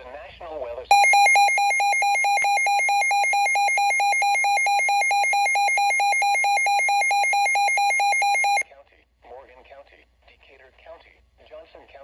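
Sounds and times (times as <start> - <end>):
weather radio alarm beeping: 0.9 - 8.6.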